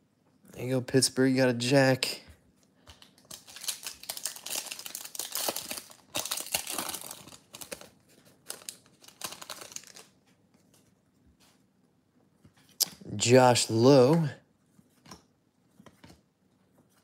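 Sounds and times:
foil wrapper tearing and crinkling: 3.3s - 10.1s.

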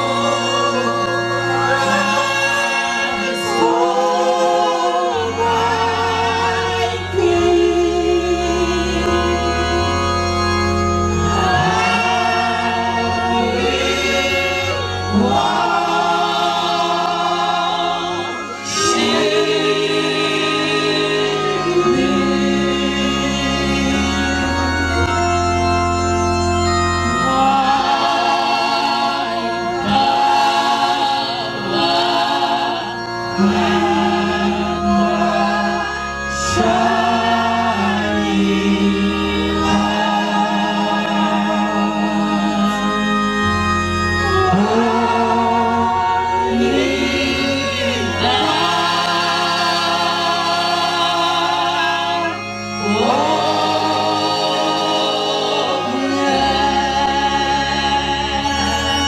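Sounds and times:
choir singing a hymn: 0.0s - 59.0s
electronic organ chords: 0.0s - 59.0s.

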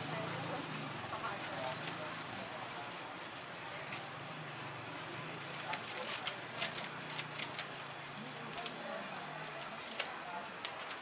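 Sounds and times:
plastic bag crinkling: 5.4s - 11.0s.

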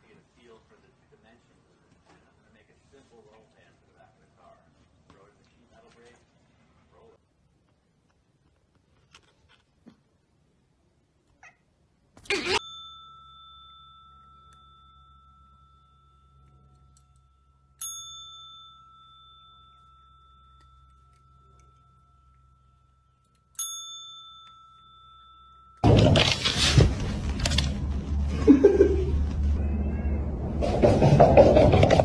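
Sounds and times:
service bell ding: 12.6s - 26.0s.

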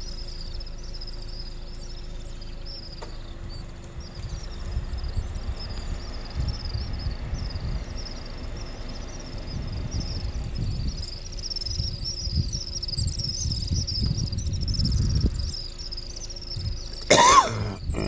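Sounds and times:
low rumble: 0.0s - 18.0s
small birds chirping: 0.0s - 18.0s.

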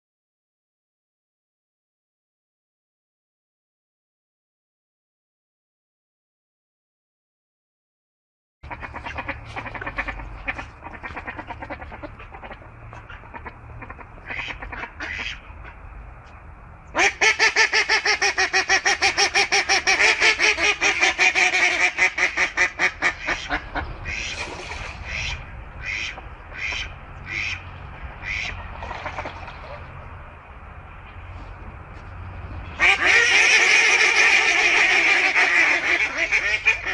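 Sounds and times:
waterfowl quacking: 8.6s - 15.8s, 17.0s - 30.0s, 32.6s - 36.9s.

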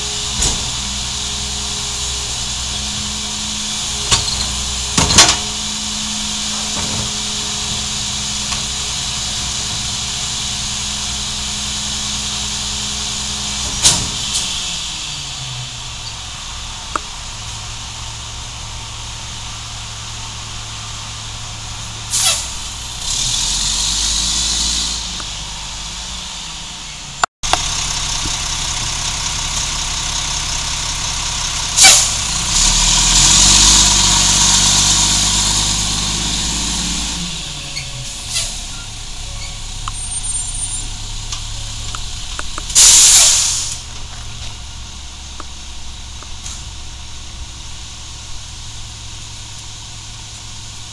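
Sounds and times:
diesel truck engine: 0.0s - 50.9s
air brake hiss: 22.1s - 22.8s, 31.8s - 32.2s, 38.1s - 38.8s, 42.8s - 43.9s.

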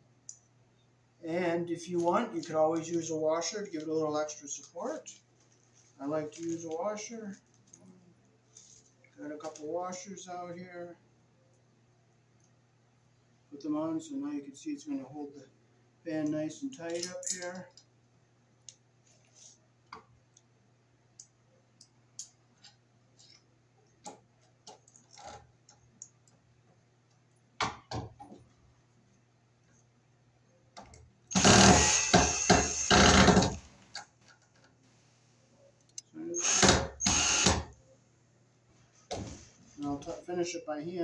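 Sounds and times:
cordless drill driving screws: 31.3s - 33.6s, 36.4s - 37.7s.

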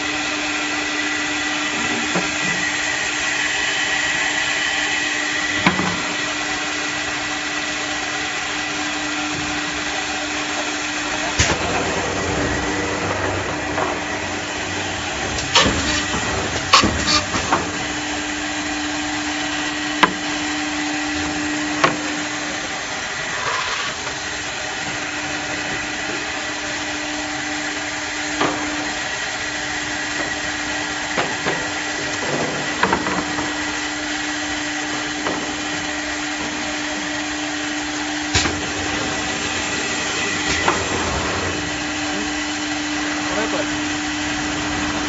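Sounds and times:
router motor hum and hiss: 0.0s - 45.0s
sharp clicks and knocks: 11.4s - 17.8s.

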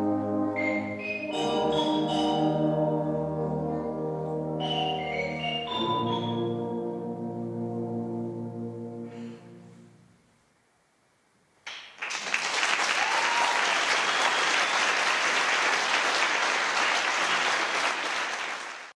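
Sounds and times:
audience applause: 11.8s - 19.0s.

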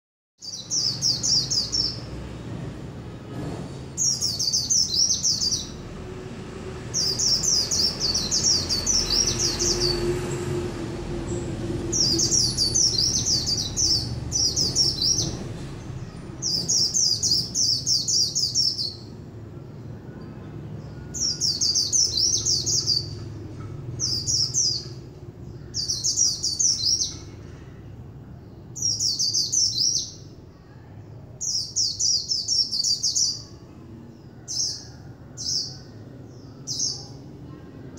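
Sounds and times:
bird twittering song: 0.4s - 2.1s, 4.0s - 5.8s, 6.9s - 10.1s, 11.9s - 19.2s, 20.2s - 27.4s, 28.4s - 30.7s, 31.4s - 33.6s.

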